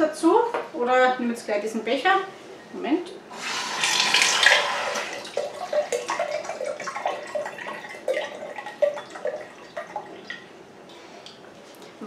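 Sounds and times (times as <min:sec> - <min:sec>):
water dripping into a cup: 0:05.2 - 0:10.5.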